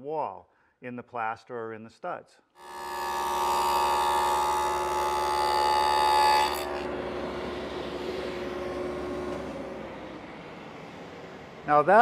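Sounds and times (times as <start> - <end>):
power tool cutting whine: 2.6 - 11.6
machine running: 2.6 - 12.0.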